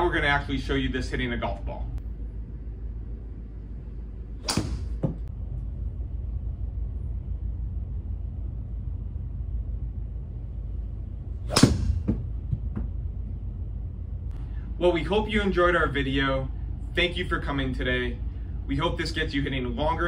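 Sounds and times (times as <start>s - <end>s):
steady low hum: 0.0s - 20.0s
golf club striking ball: 4.4s - 5.3s, 11.5s - 12.3s.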